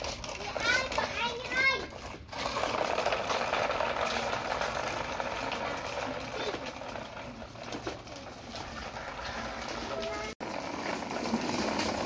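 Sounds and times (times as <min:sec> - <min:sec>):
toy truck wheels grinding on concrete: 0:00.0 - 0:12.0.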